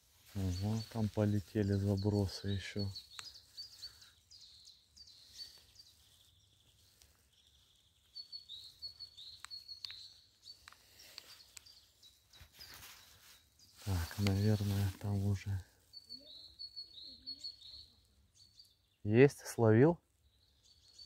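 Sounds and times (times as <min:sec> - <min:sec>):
faint bird chirping: 0:00.0 - 0:21.0.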